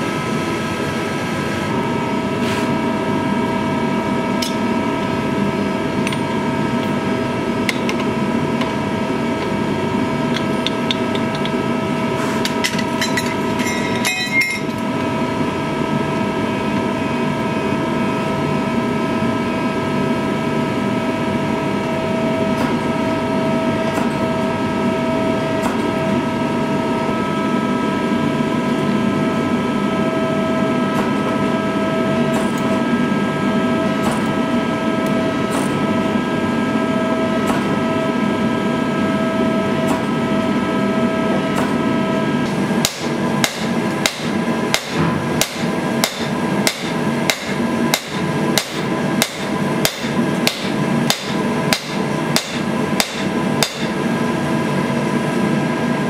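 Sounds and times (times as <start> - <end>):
forging press whining: 0.0 - 56.0
hammer striking steel on anvil: 12.4 - 14.8, 42.8 - 54.0.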